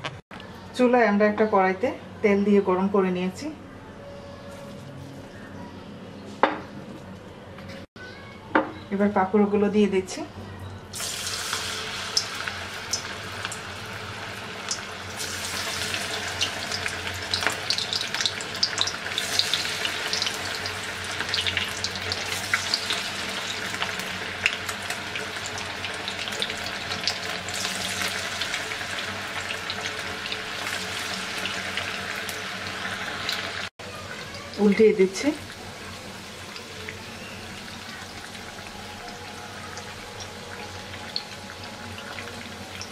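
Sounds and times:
deep-frying sizzle with crackles: 10.9s - 42.9s.

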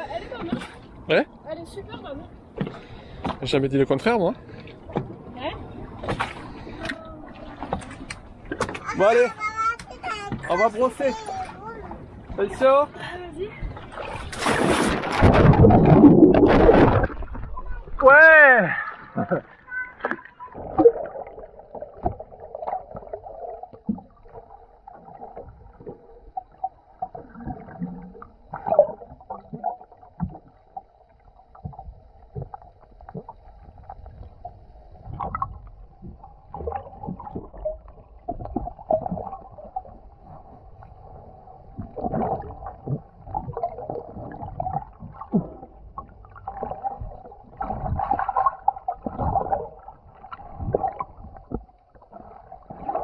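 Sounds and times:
gurgling water underwater: 13.6s - 18.1s, 18.8s - 53.0s.

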